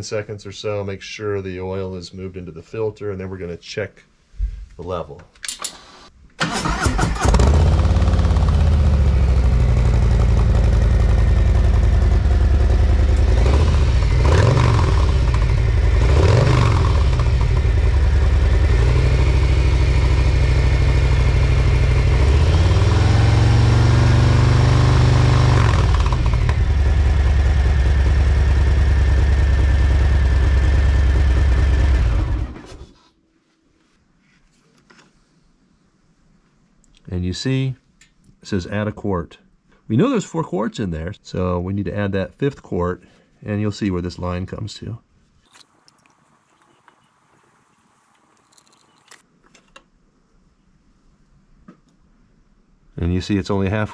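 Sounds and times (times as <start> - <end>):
motorcycle engine idling and revving: 7.2 - 32.8.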